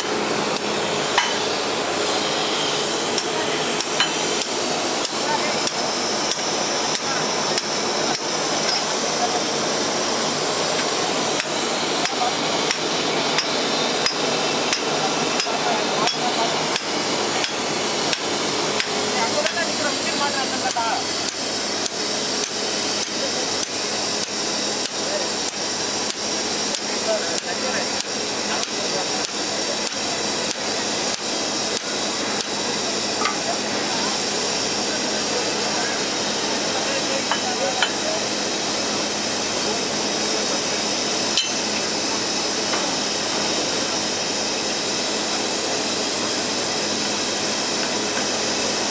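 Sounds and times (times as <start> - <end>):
steam hissing: 0.0 - 48.9
hammer striking metal: 1.1 - 1.5, 11.4 - 19.6, 41.4 - 41.6.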